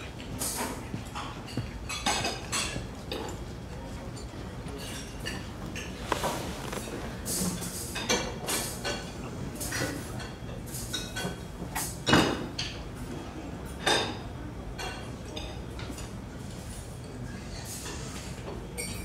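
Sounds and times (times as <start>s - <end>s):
dishes and cutlery clattering: 0.4s - 12.8s, 18.8s - 19.0s.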